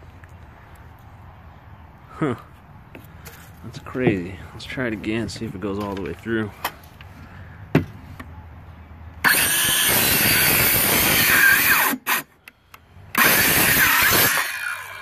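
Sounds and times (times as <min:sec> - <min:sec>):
cordless saw cutting wood: 0:09.2 - 0:12.3, 0:13.2 - 0:15.0.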